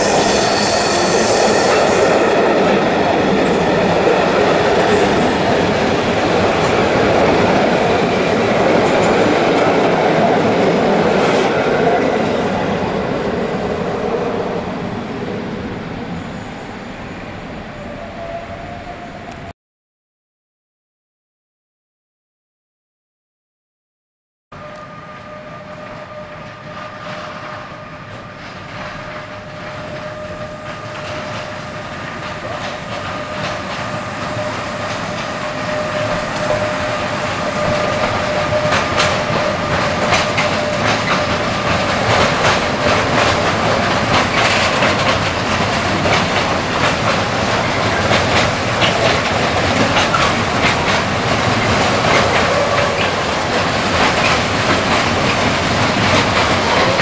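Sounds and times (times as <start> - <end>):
electric locomotive whine: 0.0 - 19.5, 24.6 - 57.0
train wheels clacking over rail joints: 26.1 - 57.0.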